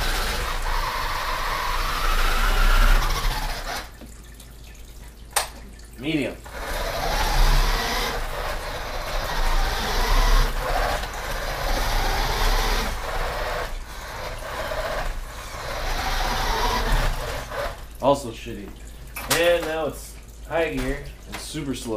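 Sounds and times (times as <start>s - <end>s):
toy car electric motor whining: 0.0s - 4.0s, 6.5s - 17.8s.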